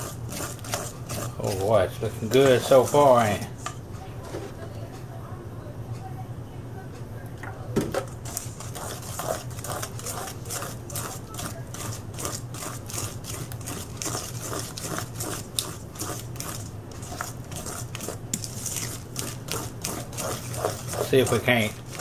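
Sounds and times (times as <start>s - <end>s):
spoon scraping a metal bowl: 0.0s - 3.8s, 8.2s - 22.0s.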